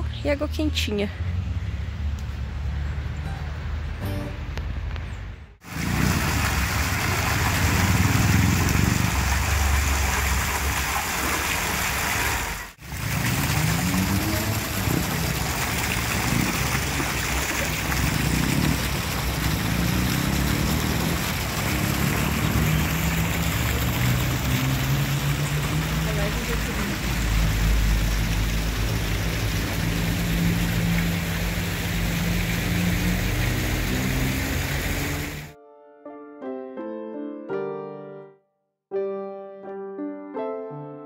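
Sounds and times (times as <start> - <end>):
fountain jets splashing into basin: 5.6 - 35.5.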